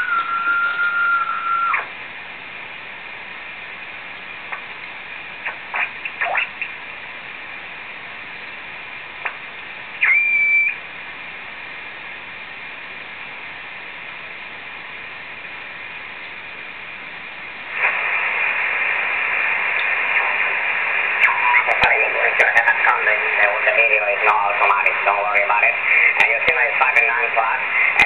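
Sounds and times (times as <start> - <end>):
heterodyne whistle: 0.0 - 1.8, 10.0 - 10.8
radio signal chirps: 0.0 - 1.9, 10.0 - 10.8, 17.8 - 28.0
radio static hiss: 0.0 - 28.0
rushing radio signal: 10.0 - 10.8, 17.7 - 28.0.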